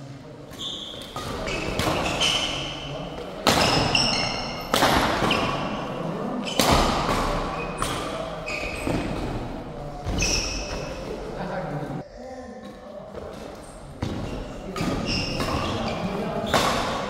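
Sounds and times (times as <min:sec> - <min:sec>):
shoes squeaking on court: 0:00.5 - 0:11.3, 0:13.2 - 0:17.0
rackets hitting shuttlecock: 0:00.8 - 0:09.4, 0:14.0 - 0:17.0.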